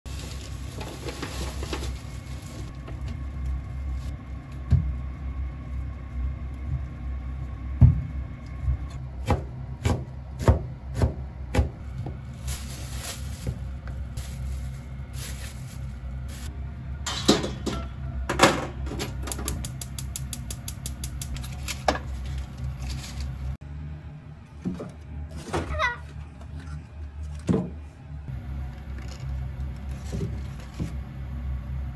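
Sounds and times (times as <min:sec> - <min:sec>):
steady low hum: 0:00.1 - 0:31.9
knife chopping on cutting board: 0:09.2 - 0:11.8.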